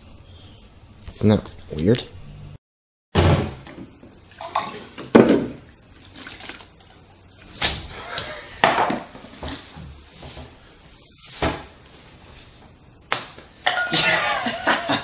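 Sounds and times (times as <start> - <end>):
liquid splashing: 4.1 - 8.0.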